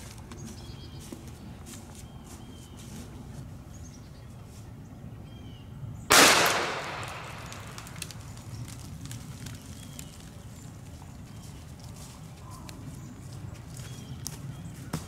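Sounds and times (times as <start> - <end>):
gunshot: 6.1 - 7.8.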